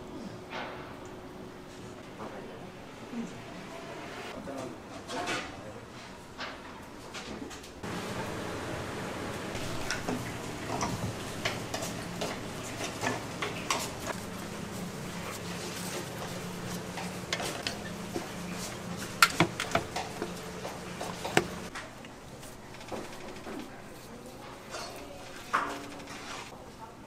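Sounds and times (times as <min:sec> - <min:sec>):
dishes and utensils clinking: 0:15.3 - 0:21.7.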